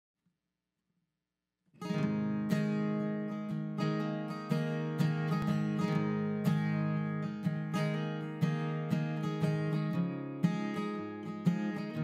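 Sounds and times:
acoustic guitar strumming: 1.8s - 12.0s.

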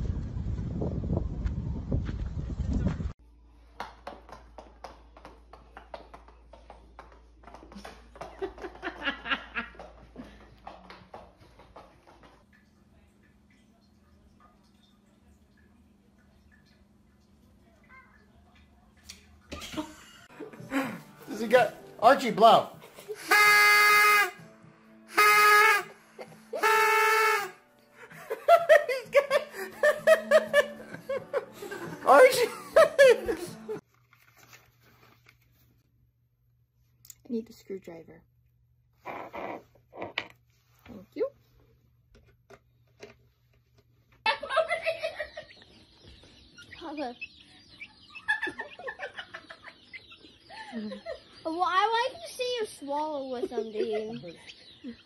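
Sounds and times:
dog paws tapping on hard floor: 3.8s - 12.5s
party horn honking: 23.1s - 27.8s.

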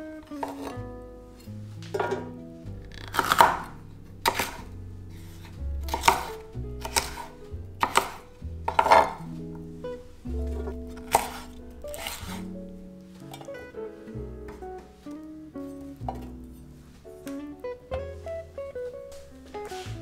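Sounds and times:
soft background music: 0.0s - 20.0s
knife chopping on wooden board: 3.0s - 4.6s, 5.9s - 9.2s, 10.6s - 12.4s.

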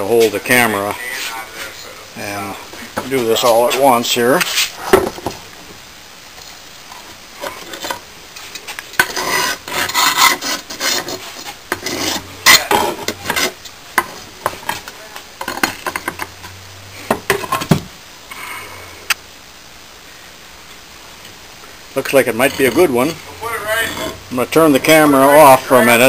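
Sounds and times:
sand rasping and spilling: 7.6s - 13.6s, 22.0s - 26.0s
metal tongs scraping metal: 22.0s - 26.0s.

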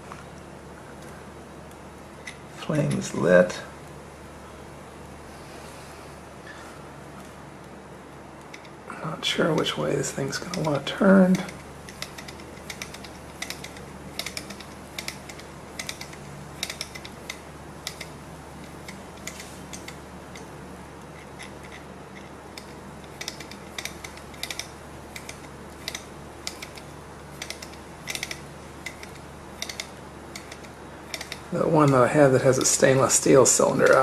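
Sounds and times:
faint steady hum: 0.0s - 34.0s
flywheel linkage clicking: 9.5s - 20.5s, 21.1s - 34.0s.

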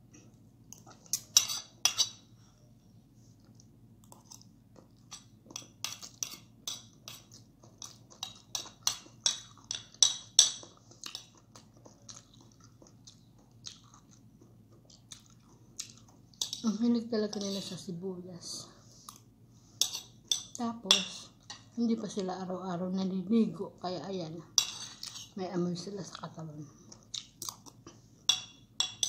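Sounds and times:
cutlery clicking on dishes: 28.3s - 29.0s.

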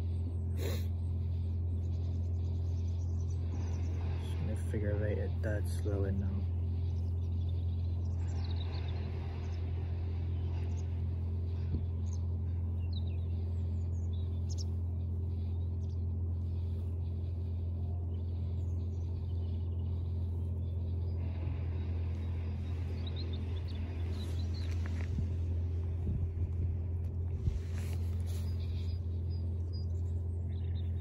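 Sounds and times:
birds chirping: 0.0s - 31.0s
low mechanical hum: 0.0s - 31.0s.

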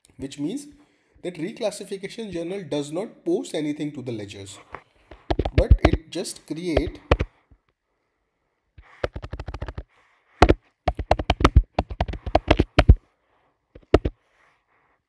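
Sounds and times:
typing on computer keyboard: 5.1s - 6.0s, 6.8s - 7.3s, 9.0s - 9.8s, 10.4s - 13.0s, 13.8s - 14.2s.

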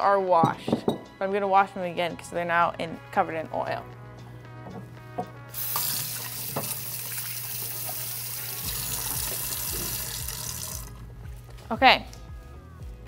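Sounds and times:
tap water running into sink: 5.6s - 11.0s.

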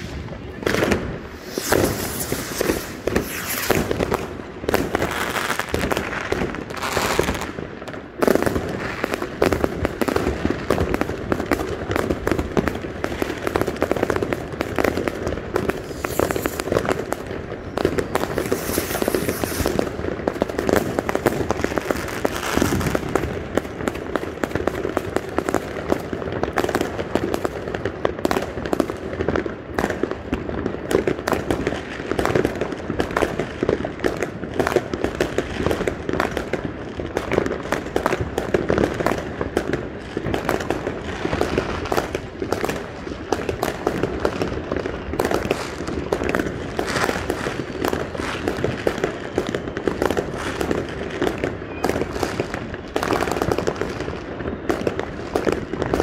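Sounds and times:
fireworks hissing: 0.0s - 7.6s, 15.6s - 17.2s, 17.9s - 20.0s
fireworks bangs and crackles: 0.0s - 56.0s.

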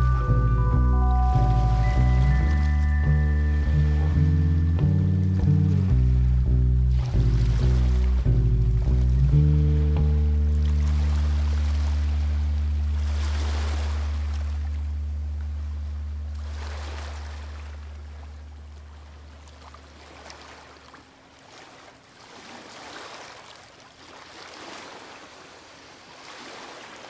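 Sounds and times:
low sustained music note: 0.0s - 19.4s
rushing water-like noise: 5.4s - 9.0s, 9.6s - 27.0s.

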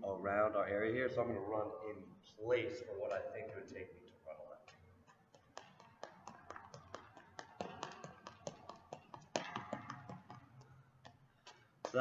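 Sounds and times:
sneaker footfalls on hard floor: 5.5s - 10.6s.

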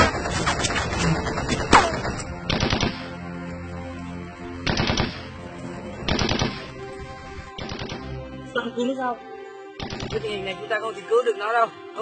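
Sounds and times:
machine-gun bursts: 0.0s - 3.0s, 4.7s - 5.2s, 6.1s - 6.6s
background music: 0.0s - 12.0s.

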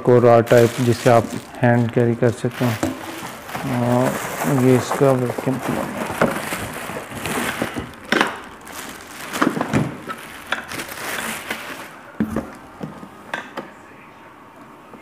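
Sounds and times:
plastic bag crinkling: 0.2s - 12.6s
handling knocks: 0.6s - 11.1s.

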